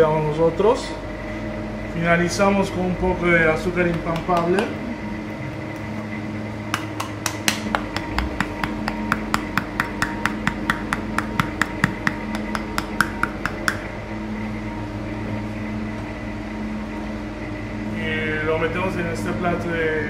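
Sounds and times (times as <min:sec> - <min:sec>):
kitchen machinery hum: 0:00.0 - 0:20.0
hand sieve tapping: 0:06.8 - 0:13.9.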